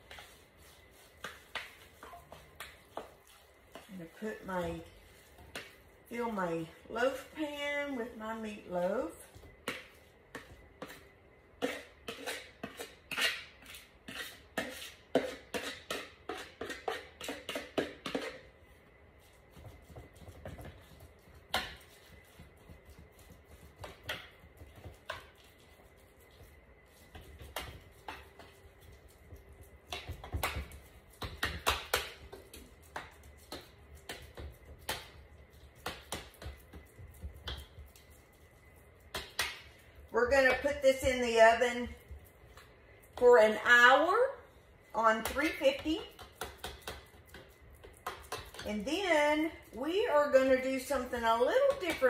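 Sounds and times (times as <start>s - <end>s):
knocks and thumps patting meat: 19.5s - 25.2s.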